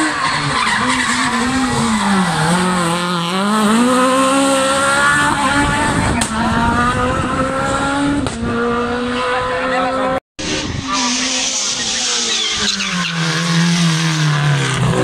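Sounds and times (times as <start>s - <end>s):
race car engine at high revs: 0.0s - 15.0s.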